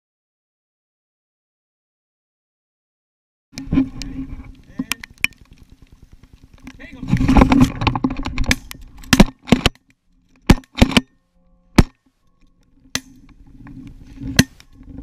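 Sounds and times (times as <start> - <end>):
straw rustling against camera: 3.6 - 10.9.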